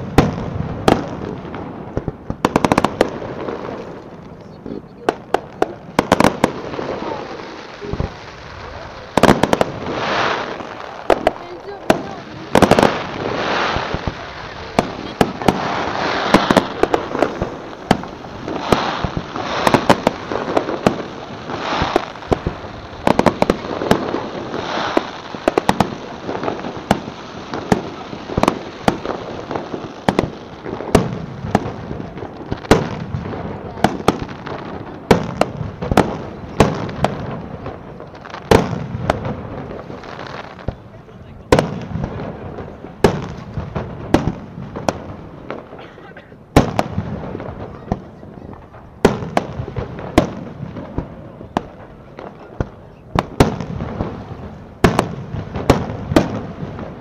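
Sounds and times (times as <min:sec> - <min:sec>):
continuous hiss: 0:00.0 - 0:57.0
fireworks shells bursting: 0:05.2 - 0:31.8.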